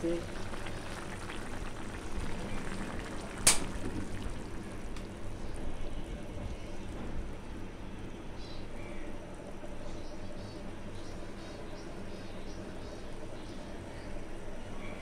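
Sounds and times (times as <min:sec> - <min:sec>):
curry bubbling in a pot: 0:00.0 - 0:06.9.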